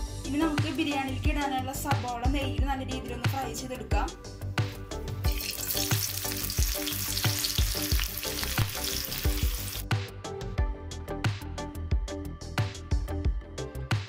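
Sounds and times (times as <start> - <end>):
background music with beat: 0.0 - 14.0
onions sizzling in oil: 5.3 - 9.8.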